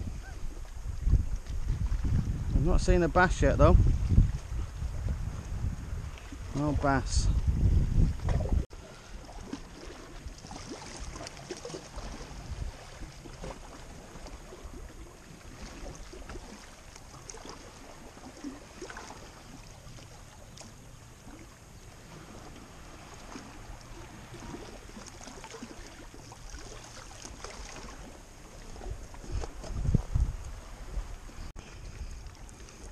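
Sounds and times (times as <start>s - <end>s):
wind rumble: 0.0s - 11.2s, 11.9s - 16.6s, 27.9s - 32.9s
waves splashing against rocks: 6.0s - 32.9s.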